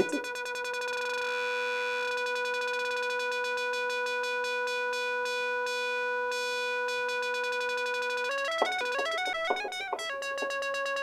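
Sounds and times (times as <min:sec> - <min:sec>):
synthesizer note with fluttering tone: 0:08.5 - 0:10.6.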